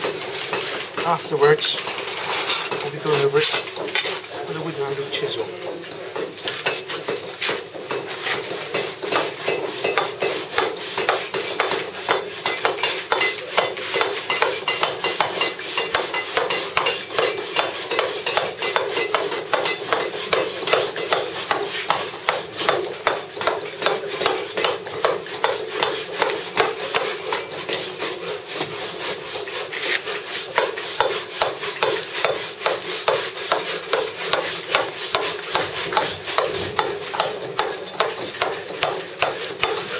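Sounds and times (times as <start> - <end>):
mallet tapping chisel on stone: 8.7 - 27.8, 29.9 - 39.9.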